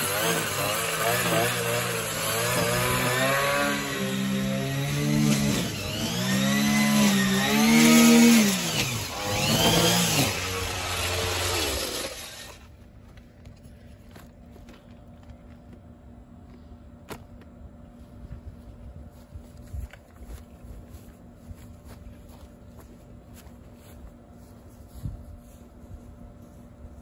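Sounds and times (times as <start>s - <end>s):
small engine revving: 0.0s - 12.7s.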